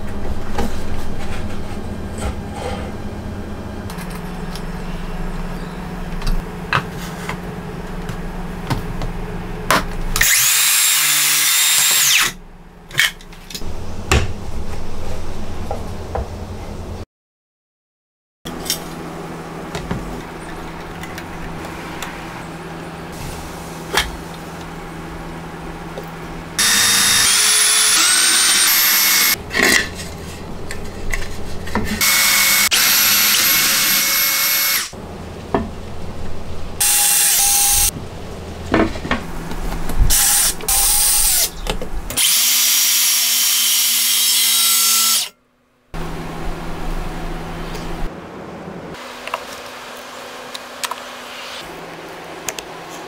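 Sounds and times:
cordless drill drilling wood: 10.2 - 12.4, 26.6 - 29.4, 32.0 - 34.9, 36.8 - 37.9, 42.2 - 45.3.

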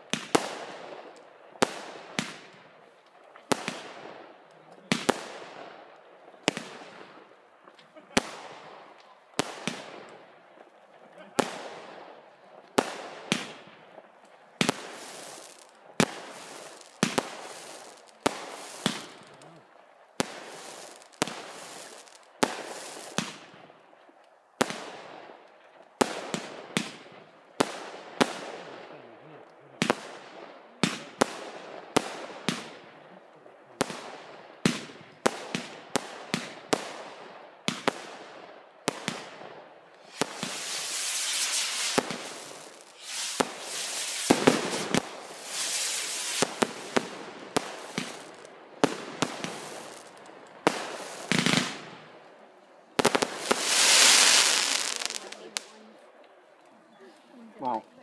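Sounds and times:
fireworks bangs: 14.6 - 19.5, 20.2 - 23.4, 40.0 - 52.2, 53.0 - 55.8
fireworks hiss: 14.6 - 19.5, 20.2 - 23.3, 40.0 - 51.9, 53.0 - 55.7.

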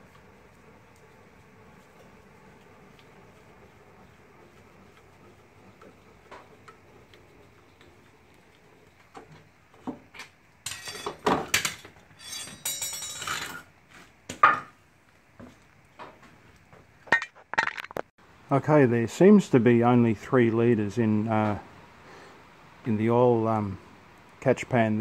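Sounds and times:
clattering and scraping on concrete: 9.1 - 14.8, 17.1 - 18.1
metal clinks and knocks: 10.7 - 13.6.

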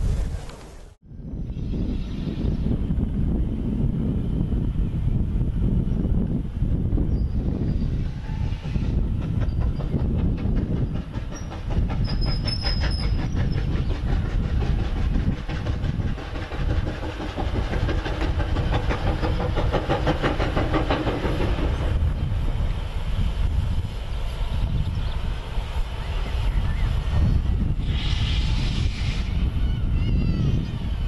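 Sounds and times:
steam locomotive exhaust beats: 1.6 - 31.0
train wheel clatter: 7.4 - 29.3.

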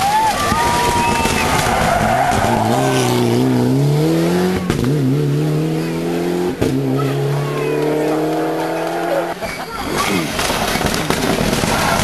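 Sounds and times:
rally car engine accelerating: 0.8 - 12.0
gear change crack: 10.0 - 12.0.

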